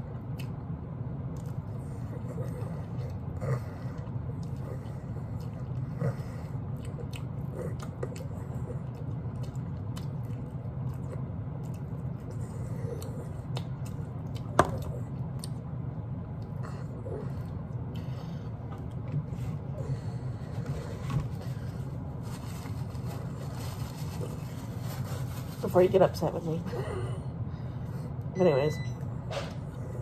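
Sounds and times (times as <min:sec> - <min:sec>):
person chewing meat: 0:00.0 - 0:23.4
steady low hum: 0:00.0 - 0:30.0.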